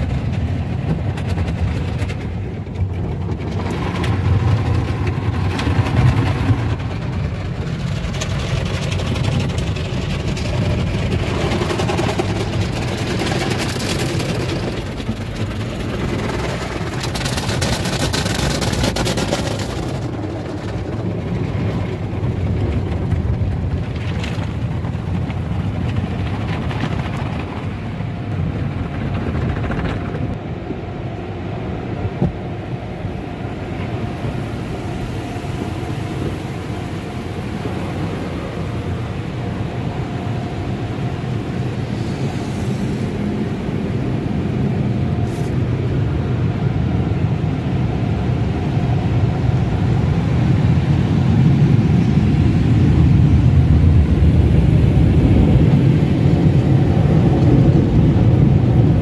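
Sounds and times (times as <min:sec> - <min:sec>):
water jets spraying on car: 0:00.0 - 0:28.9, 0:33.2 - 0:46.8
steady low rumble: 0:00.0 - 0:59.0.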